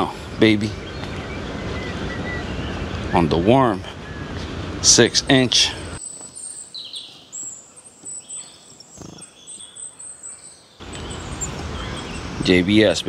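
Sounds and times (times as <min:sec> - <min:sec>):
faint bird chirps: 0:05.9 - 0:13.0.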